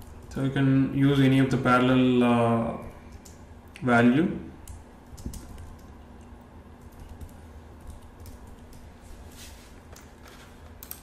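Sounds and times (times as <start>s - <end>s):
low background hum: 0.0s - 11.0s
keyboard keystrokes: 4.6s - 5.9s.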